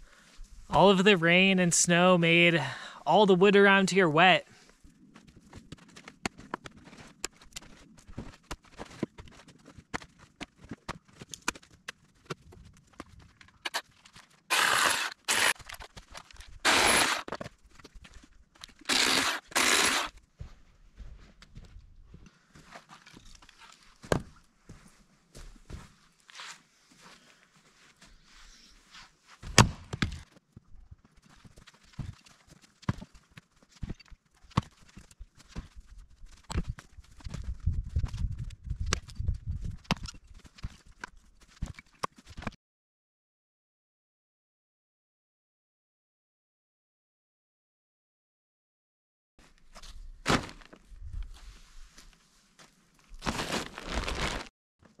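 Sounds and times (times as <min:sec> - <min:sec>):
chainsaw motor hum: 0:14.5 - 0:15.5, 0:16.7 - 0:17.2, 0:18.9 - 0:20.1.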